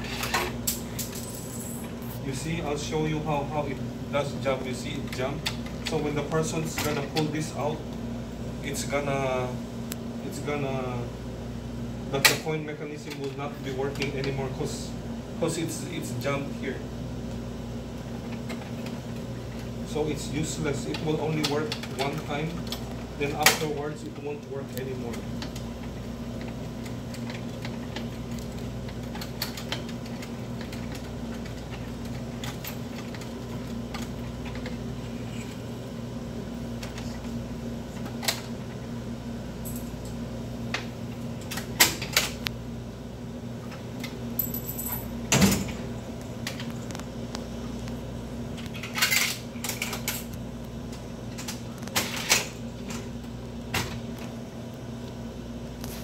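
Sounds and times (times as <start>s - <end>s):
low electrical hum: 0.0s - 56.0s.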